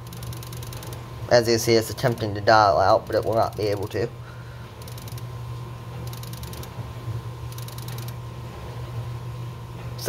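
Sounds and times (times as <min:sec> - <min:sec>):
rapid ticking: 0:00.0 - 0:01.0, 0:01.8 - 0:04.0, 0:06.1 - 0:06.7, 0:07.5 - 0:08.2
steady low hum: 0:00.0 - 0:10.0.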